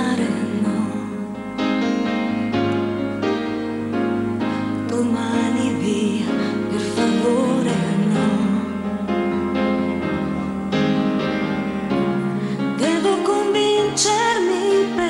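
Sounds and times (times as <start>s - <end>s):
woman singing: 0.0s - 1.5s, 4.8s - 9.0s, 12.7s - 15.0s
slow pop ballad chords: 0.0s - 15.0s.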